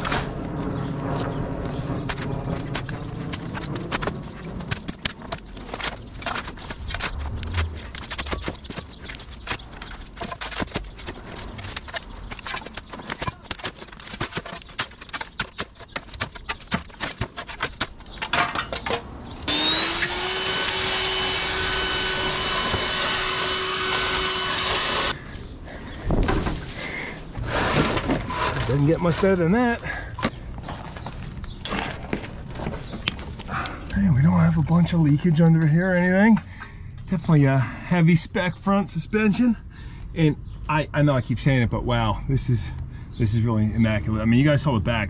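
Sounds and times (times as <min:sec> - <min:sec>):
shovel scraping dirt: 0:00.0 - 0:25.2, 0:27.4 - 0:33.4
leaf blower whine: 0:19.4 - 0:25.2.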